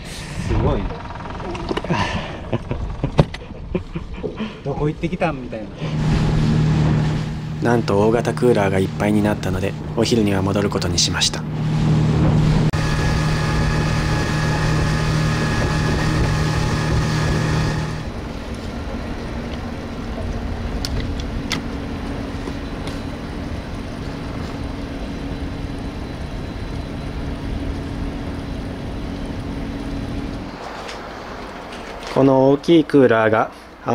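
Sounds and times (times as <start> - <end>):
low hum: 0.0 - 32.2
boat wake rushing: 5.7 - 31.9
outboard motor running: 5.8 - 30.4.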